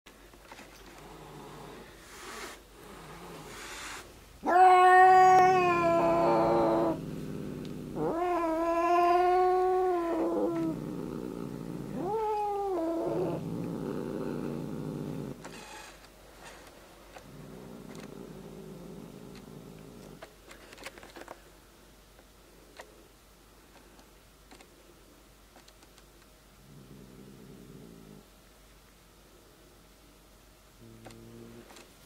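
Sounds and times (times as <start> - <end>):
cat growling: 0.9 - 15.4, 17.2 - 20.3, 26.6 - 28.3, 30.8 - 31.8
cat yowling: 4.4 - 7.0, 7.9 - 10.8, 12.0 - 13.4.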